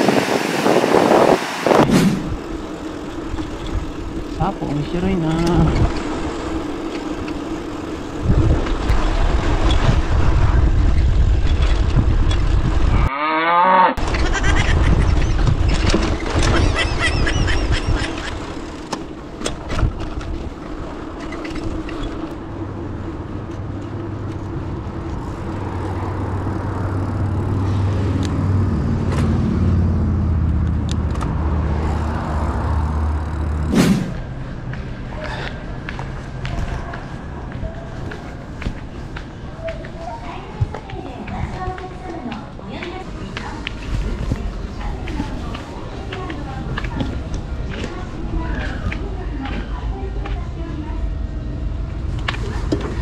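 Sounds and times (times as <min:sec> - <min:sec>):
wind rushing over microphone: 0:00.0 - 0:02.7, 0:08.1 - 0:13.1, 0:14.0 - 0:18.4
road traffic: 0:00.0 - 0:53.0
low engine hum: 0:14.0 - 0:42.6.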